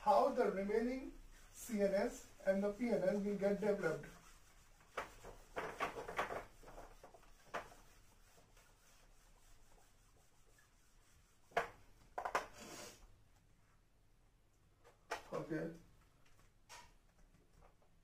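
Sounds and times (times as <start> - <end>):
eraser wiping a whiteboard: 0.2 - 13.0.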